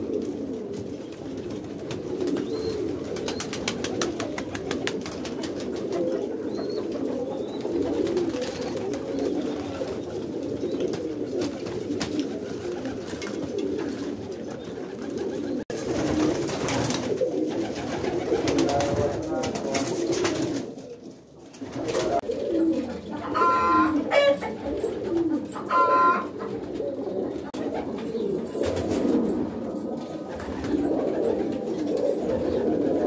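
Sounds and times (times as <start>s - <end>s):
pigeons cooing: 0.0s - 33.0s.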